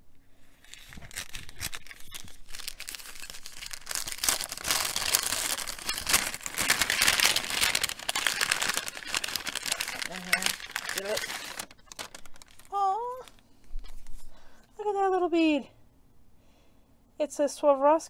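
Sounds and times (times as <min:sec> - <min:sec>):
paper bag crinkling: 0:00.4 - 0:14.4.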